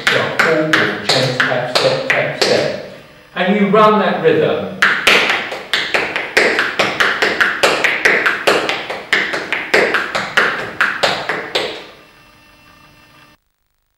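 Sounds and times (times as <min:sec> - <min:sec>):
tap shoes on hard floor: 0:04.8 - 0:11.9.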